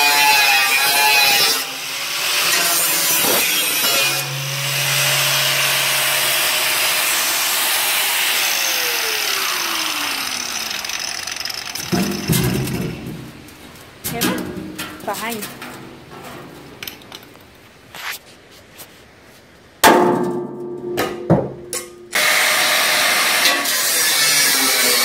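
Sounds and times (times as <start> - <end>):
angle grinder cutting metal: 0.0 - 12.9, 22.1 - 25.0.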